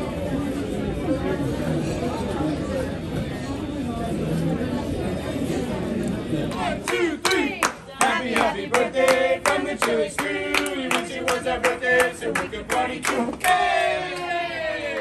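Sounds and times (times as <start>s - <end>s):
group singing birthday song: 6.5s - 15.0s
people clapping in time: 6.5s - 15.0s.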